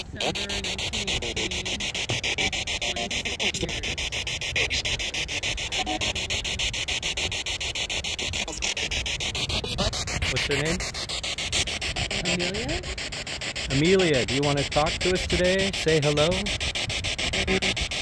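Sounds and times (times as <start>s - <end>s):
radio whistle: 0.0s - 10.8s, 17.2s - 18.0s
broadcast voices: 0.0s - 17.9s
radio static hiss: 0.0s - 18.0s
rapid even clicks: 0.0s - 18.0s.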